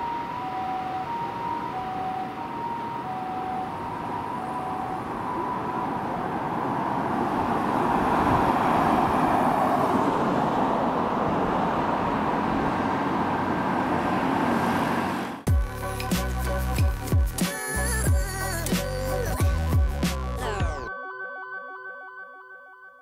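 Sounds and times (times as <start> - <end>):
two-tone ambulance siren: 0.0 - 10.0
road traffic noise: 0.0 - 20.8.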